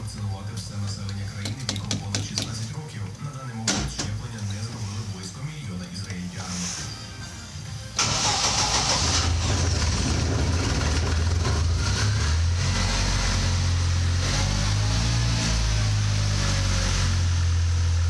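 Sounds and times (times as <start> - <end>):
van engine running: 8.0 - 18.0.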